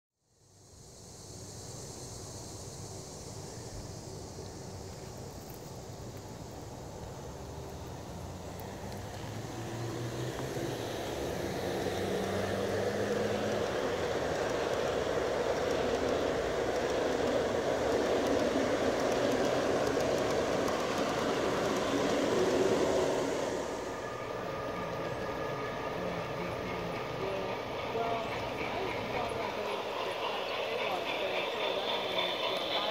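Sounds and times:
model train wheels rumbling on rails: 0:01.1 - 0:32.9
locomotive low hum: 0:01.2 - 0:32.9.

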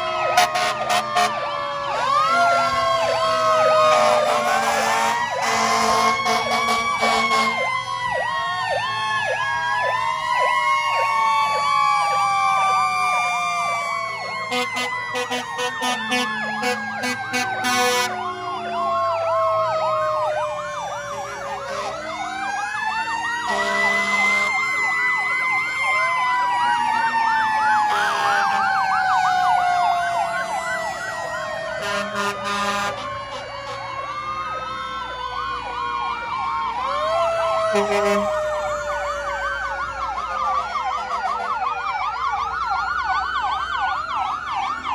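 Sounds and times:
fast siren yelps: 0:00.0 - 0:44.9
fire truck sirens wailing: 0:00.0 - 0:44.9
low steady horn blast: 0:00.2 - 0:01.4, 0:03.8 - 0:07.7, 0:14.5 - 0:18.6, 0:23.4 - 0:24.6, 0:27.9 - 0:28.7, 0:31.8 - 0:33.9, 0:37.7 - 0:38.3.

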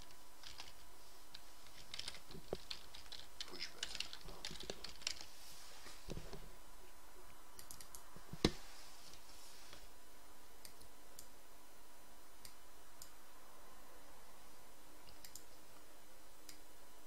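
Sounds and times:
computer mouse buttons clicking: 0:07.6 - 0:08.6, 0:15.1 - 0:15.6.

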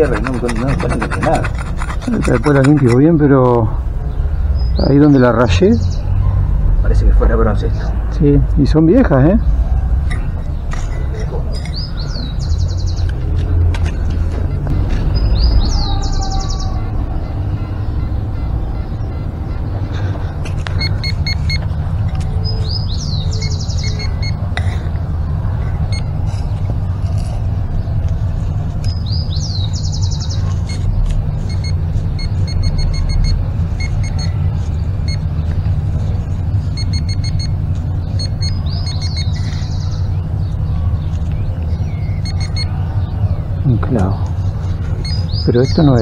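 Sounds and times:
bird singing: 0:00.0 - 0:24.5, 0:27.5 - 0:46.0
steady low rumble: 0:06.4 - 0:45.6
pinpointer beeping: 0:16.6 - 0:21.7, 0:23.4 - 0:24.4, 0:25.9 - 0:26.1, 0:30.6 - 0:34.4, 0:35.1 - 0:35.3, 0:36.7 - 0:39.4, 0:42.1 - 0:42.8.

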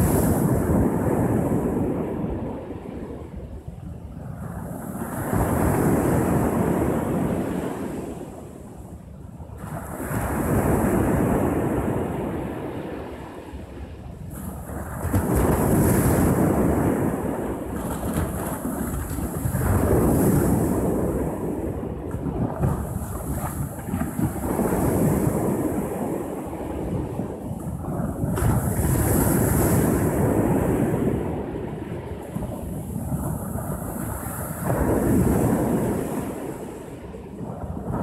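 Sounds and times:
waves washing up a beach: 0:00.0 - 0:38.0.

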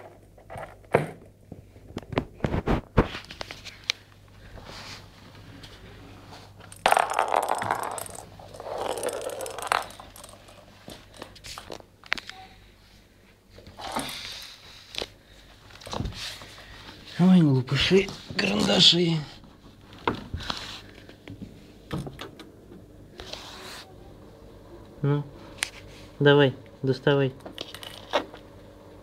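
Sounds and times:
rustling and scraping: 0:01.5 - 0:12.3, 0:15.7 - 0:18.9, 0:19.6 - 0:21.2
ball clicking on wooden floor: 0:06.7 - 0:11.7.

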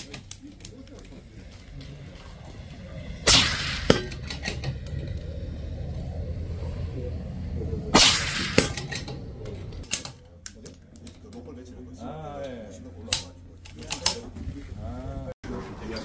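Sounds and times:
sharp crack: 0:03.2 - 0:04.8, 0:07.9 - 0:09.2
rifle shots: 0:03.3 - 0:04.5, 0:07.9 - 0:09.0.

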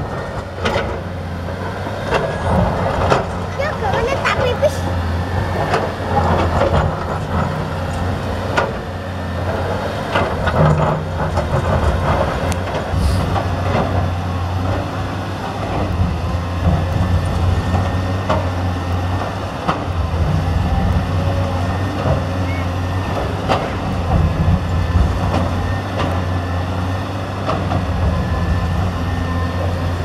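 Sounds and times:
excavator diesel engine running: 0:00.0 - 0:30.0.

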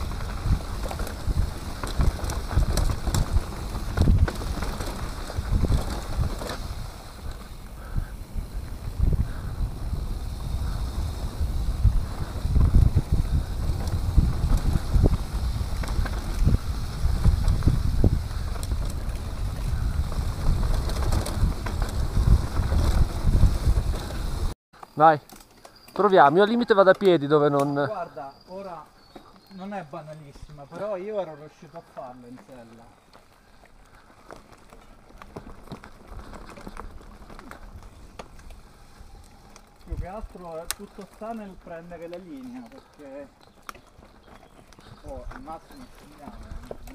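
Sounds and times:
bike thumps and rattles: 0:00.0 - 0:24.5
wind buffeting microphone: 0:00.0 - 0:24.6
tyres rumbling over dirt: 0:00.0 - 0:46.9.

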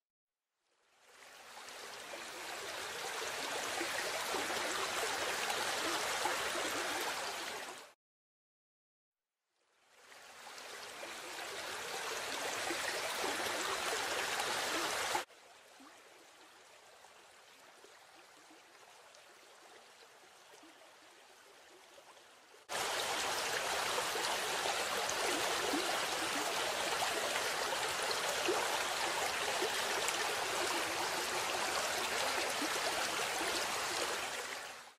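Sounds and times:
waterfall rushing over rocks: 0:22.7 - 0:34.3.

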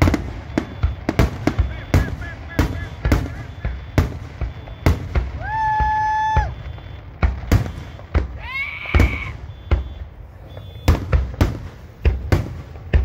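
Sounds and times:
firework whistle: 0:00.0 - 0:11.6
firework shells bursting: 0:00.0 - 0:13.0.

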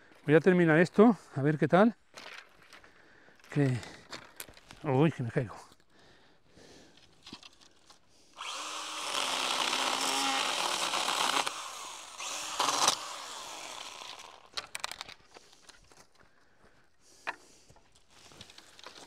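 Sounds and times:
chainsaw cutting branches: 0:08.4 - 0:15.1.

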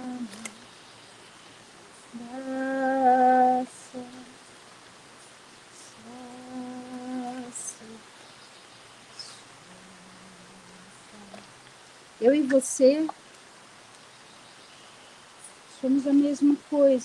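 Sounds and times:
woman humming: 0:00.0 - 0:00.7, 0:02.1 - 0:04.4, 0:05.8 - 0:08.1, 0:09.1 - 0:11.6.

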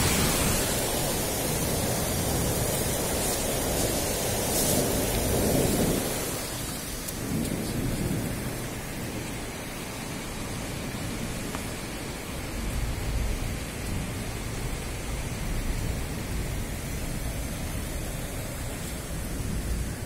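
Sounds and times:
steady rain: 0:00.0 - 0:20.0
thunder rumbling: 0:00.0 - 0:20.0.

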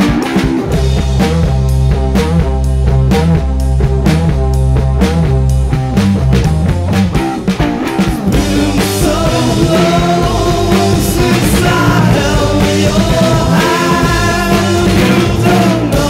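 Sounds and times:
rock band playing: 0:00.0 - 0:16.0
person singing: 0:08.3 - 0:16.0.

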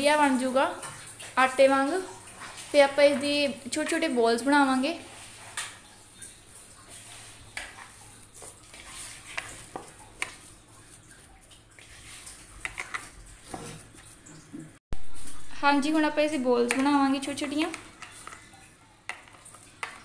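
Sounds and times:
hand kneading dough: 0:06.9 - 0:14.7.

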